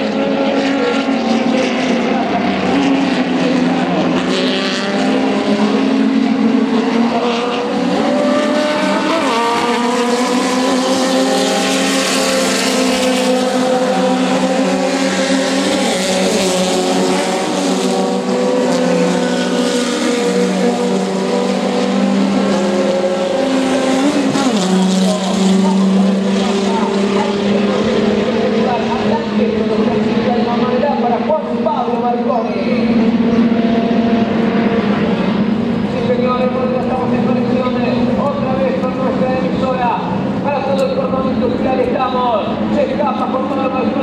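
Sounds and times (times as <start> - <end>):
race car engines passing: 0.0 - 44.0.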